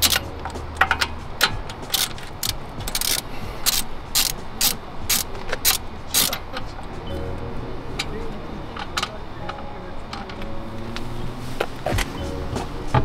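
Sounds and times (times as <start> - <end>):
ratchet wrench clicking: 0.0 - 6.9.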